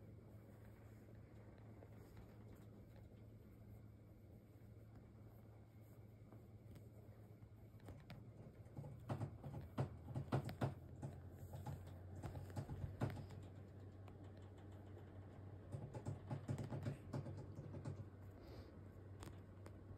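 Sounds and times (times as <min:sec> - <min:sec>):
soft rustles: 0:00.0 - 0:09.0
low steady hum: 0:00.0 - 0:19.9.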